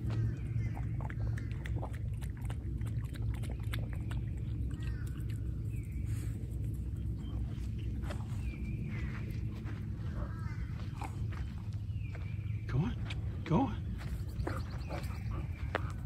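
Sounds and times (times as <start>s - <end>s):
low rumble: 0.0s - 16.0s
bird chirps: 4.7s - 16.0s.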